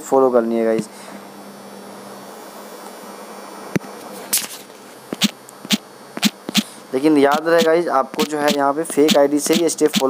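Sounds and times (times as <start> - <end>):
short sharp clicks: 5.2 - 6.7, 7.3 - 10.0.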